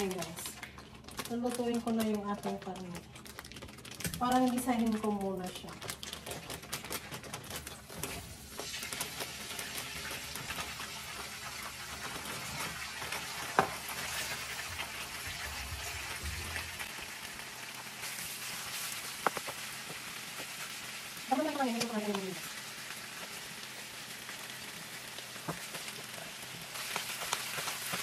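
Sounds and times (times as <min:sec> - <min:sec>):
meat sizzling in a pan: 0:08.4 - 0:28.0.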